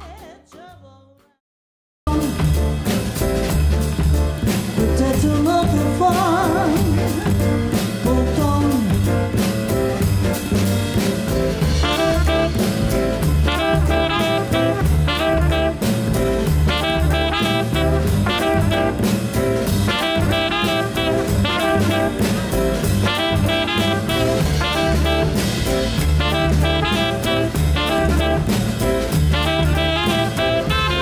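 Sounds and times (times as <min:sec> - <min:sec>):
drum kit: 0:00.0 - 0:00.8, 0:02.1 - 0:31.0
upright double bass: 0:02.1 - 0:31.0
saxophone: 0:11.6 - 0:31.0
trumpet: 0:11.6 - 0:31.0.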